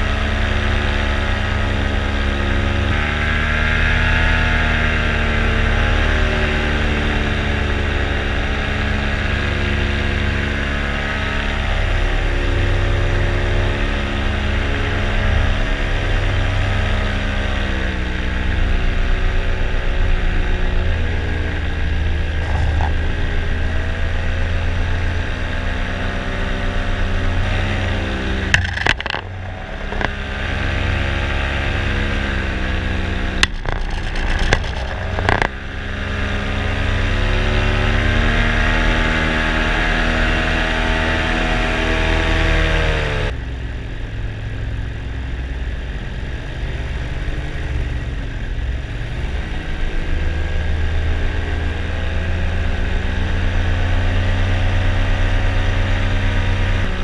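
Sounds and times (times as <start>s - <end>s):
paramotor engine and propeller: 0.0s - 57.0s
low rumble: 21.8s - 25.6s, 26.8s - 36.5s
sharp knocks: 28.5s - 30.2s, 33.4s - 35.6s.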